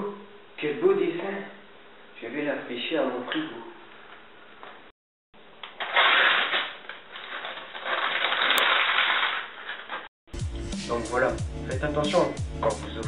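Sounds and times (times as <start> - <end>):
paper being crumpled: 5.6 - 10.1.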